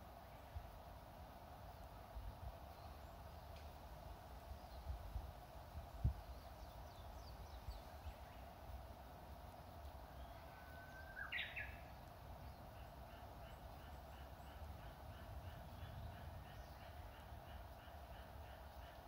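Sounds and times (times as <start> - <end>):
warbler song: 1.6 - 19.0
faint bird chirps: 9.7 - 19.0.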